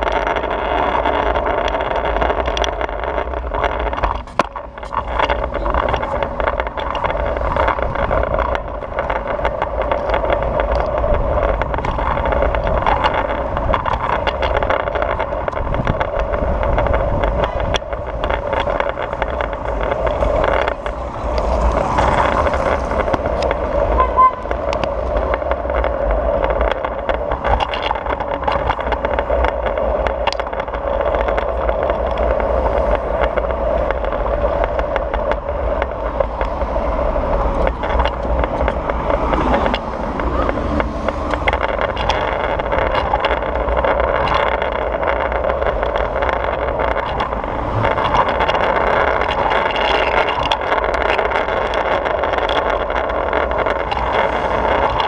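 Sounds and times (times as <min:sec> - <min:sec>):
scooter wheels rolling on pavement: 0:00.0 - 0:55.0.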